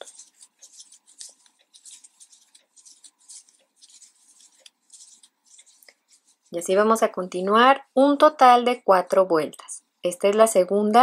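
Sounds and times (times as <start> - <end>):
crochet hook scratching yarn: 0.0 - 6.8.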